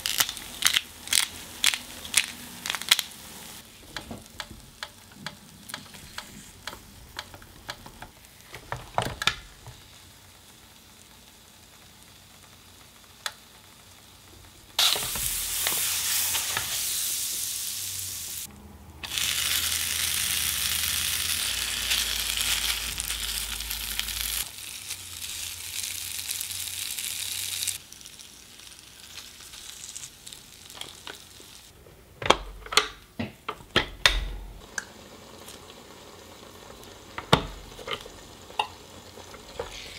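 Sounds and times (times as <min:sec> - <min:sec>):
meat sizzling on grill plate: 0:09.4 - 0:31.7, 0:34.6 - 0:39.9.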